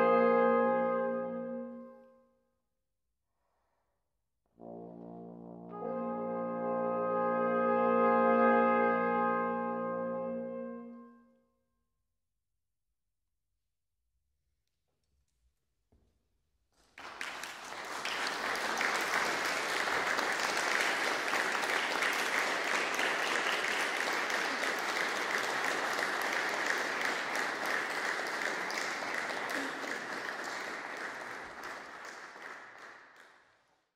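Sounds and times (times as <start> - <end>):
audience applauding: 16.8 - 33.7.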